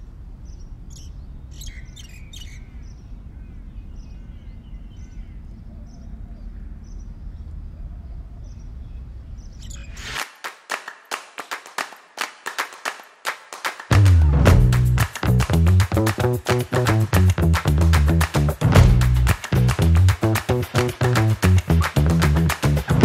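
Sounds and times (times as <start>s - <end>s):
small birds chirping: 0.4s - 10.2s
sharp percussive music hits: 13.9s - 23.0s
low rumble: 17.3s - 20.3s.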